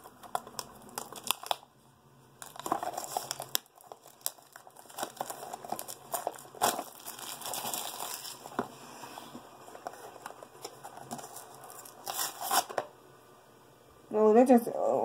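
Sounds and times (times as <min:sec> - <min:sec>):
packaging crumpling and crackling: 0:00.0 - 0:01.7, 0:02.4 - 0:08.7, 0:09.4 - 0:12.9.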